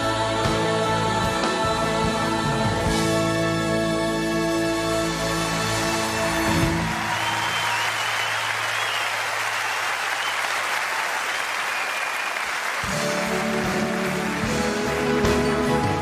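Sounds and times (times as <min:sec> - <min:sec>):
audience applauding: 0:05.5 - 0:16.0
instrumental music: 0:12.8 - 0:16.0.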